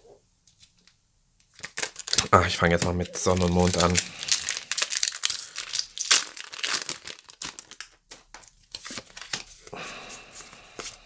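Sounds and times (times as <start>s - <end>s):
foil wrapper crinkling: 1.5s - 9.7s.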